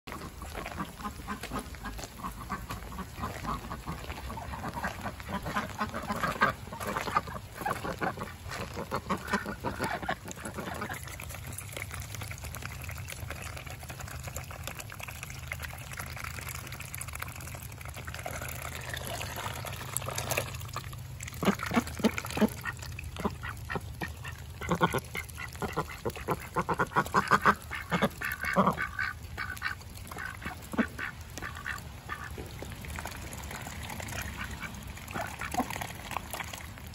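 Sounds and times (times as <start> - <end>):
ducks quacking: 0.1 - 12.1, 21.2 - 36.2
ducks dabbling in rice: 0.1 - 36.9.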